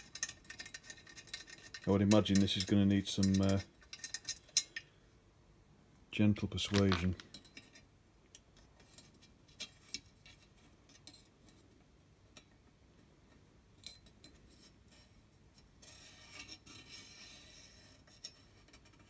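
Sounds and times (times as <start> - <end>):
fingers clicking and scraping metal: 0.0 - 4.9
rubbing scrape: 15.8 - 19.0.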